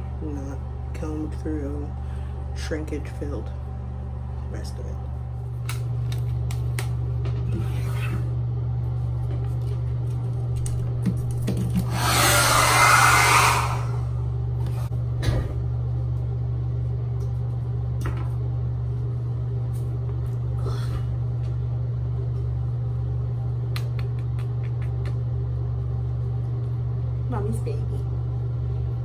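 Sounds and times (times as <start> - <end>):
steady low hum: 0.0 - 29.0
loud hissing burst: 11.9 - 14.1.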